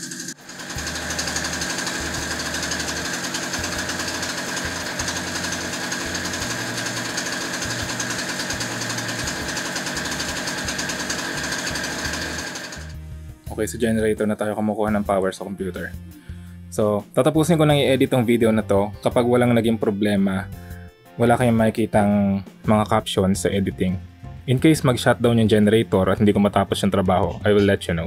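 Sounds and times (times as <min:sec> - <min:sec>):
generator engine running: 0:00.0 - 0:13.1.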